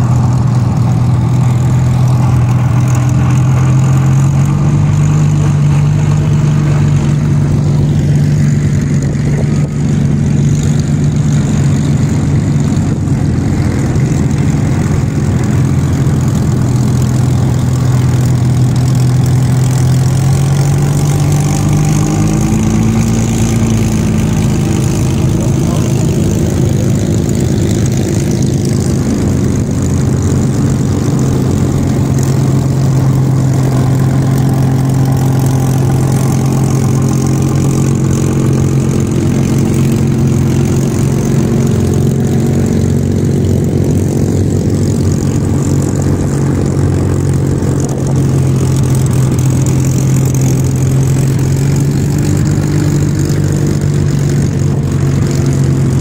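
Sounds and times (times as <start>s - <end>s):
propeller aircraft engines humming: 0.0s - 56.0s.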